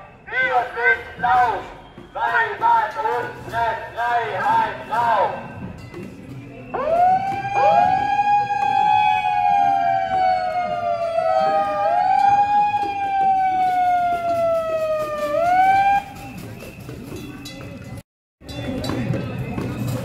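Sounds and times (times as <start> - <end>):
siren wailing: 6.8 - 16.2.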